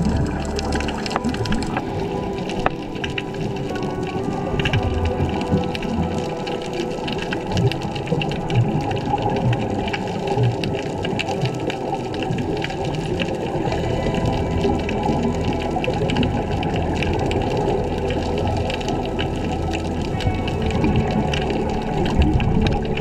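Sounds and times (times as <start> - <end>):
fine crackle of reef clicks: 0.0 - 23.0
gurgling regulator bubbles underwater: 0.0 - 23.0.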